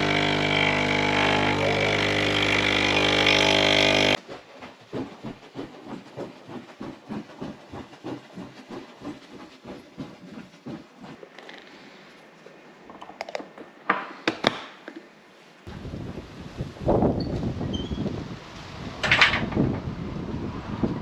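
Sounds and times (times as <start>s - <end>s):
espresso machine pump humming: 0.0s - 4.2s.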